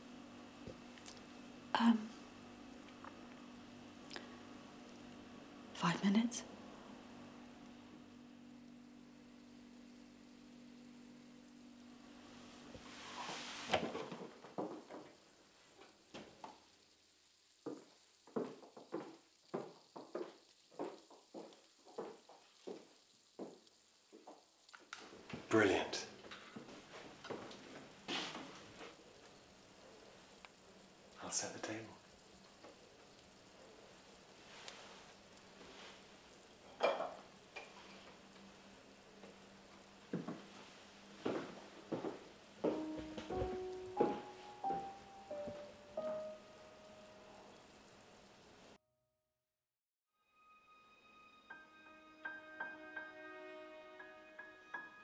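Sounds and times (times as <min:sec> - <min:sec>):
faint sizzling: 0:00.0 - 0:48.8
soft hiss: 0:00.0 - 0:48.8
utensils and dishes clinking: 0:36.7 - 0:37.2.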